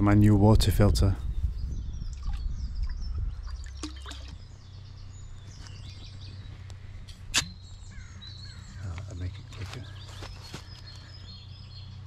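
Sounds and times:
low steady rumble: 0:00.0 - 0:12.0
small birds singing: 0:00.0 - 0:12.0
sharp click: 0:07.1 - 0:07.6.

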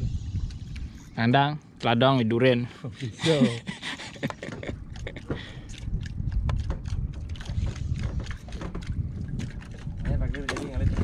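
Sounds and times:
wind rumbling on microphone: 0:00.0 - 0:01.2, 0:04.1 - 0:11.0
water sloshing around boat: 0:00.1 - 0:11.0.

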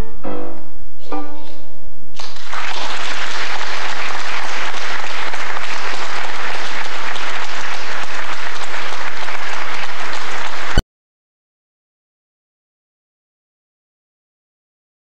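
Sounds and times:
audience applauding: 0:02.2 - 0:10.8.

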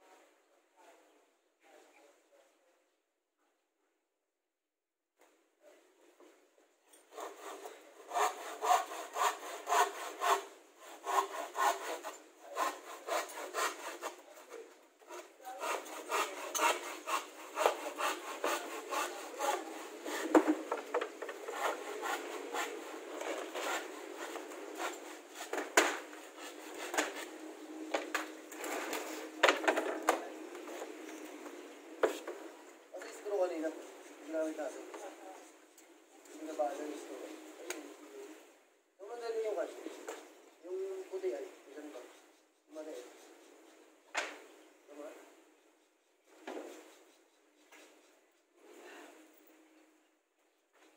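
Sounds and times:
wood scraping against wood: 0:07.0 - 0:35.6.

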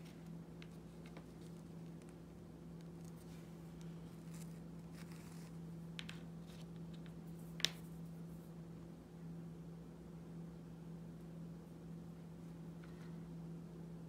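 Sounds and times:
small pieces set down on a mat: 0:05.9 - 0:07.8.

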